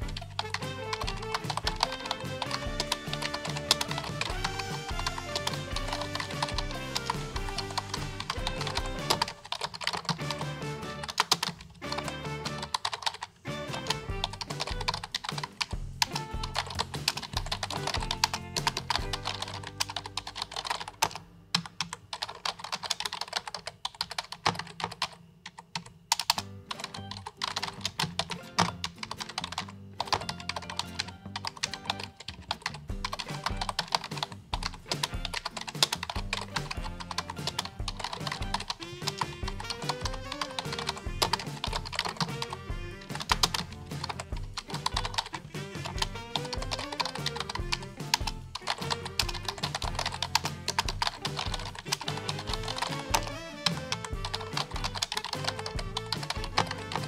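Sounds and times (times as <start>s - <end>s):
background music with bass line: 0.0s - 9.4s, 13.5s - 19.7s, 32.8s - 57.0s
fast typing on keyboard: 0.0s - 57.0s.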